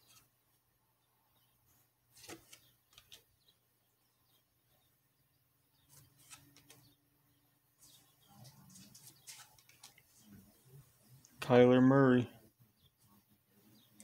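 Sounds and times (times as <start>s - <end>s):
cards scraping on table: 2.2s - 3.2s, 5.9s - 6.9s, 8.5s - 10.0s
paper cards shuffled by hand: 2.2s - 3.2s, 5.9s - 6.8s, 8.5s - 10.2s.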